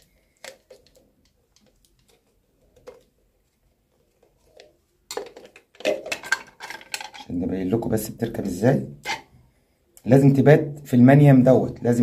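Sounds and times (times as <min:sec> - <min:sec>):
plastic parts clicking: 0:00.0 - 0:03.1, 0:04.1 - 0:07.3
plastic clatter: 0:00.3 - 0:03.2, 0:04.0 - 0:07.3.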